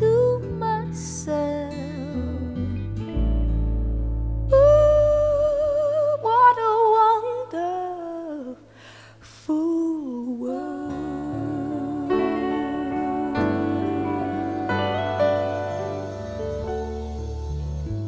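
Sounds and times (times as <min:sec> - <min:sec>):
hummed melody with vibrato: 0:10.4 - 0:18.0
instrumental chords: 0:10.9 - 0:18.0.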